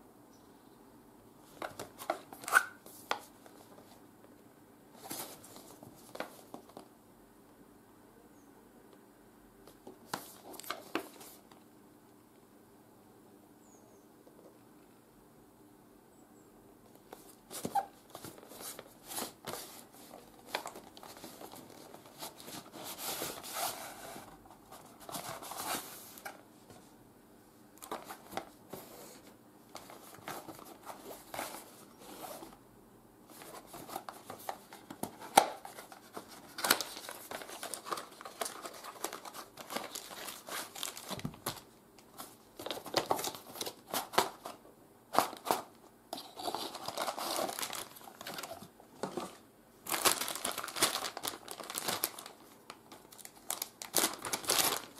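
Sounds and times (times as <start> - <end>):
plastic bags rustling and crinkling: 17.1 - 26.4, 33.3 - 54.9.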